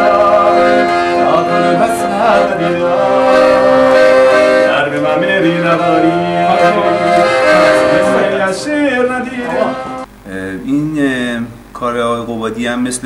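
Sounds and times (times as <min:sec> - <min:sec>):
piano accordion slow melody: 0:00.0 - 0:10.1.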